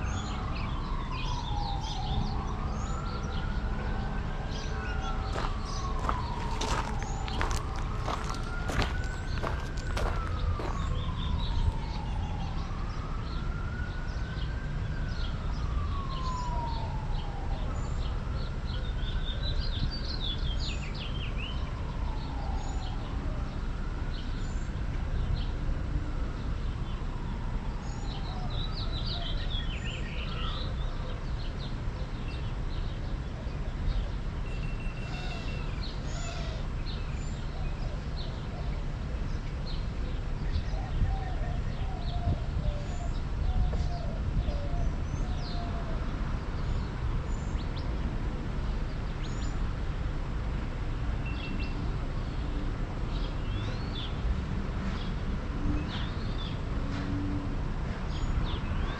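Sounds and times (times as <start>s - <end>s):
birds chirping: 0.0s - 12.1s
emergency siren wailing: 0.0s - 53.4s
steady low rumble: 4.6s - 12.1s.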